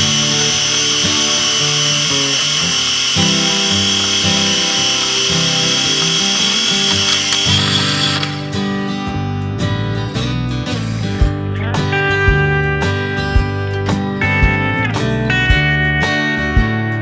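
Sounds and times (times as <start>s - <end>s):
camera motor rewinding film: 0.0s - 8.5s
background music: 0.0s - 17.0s.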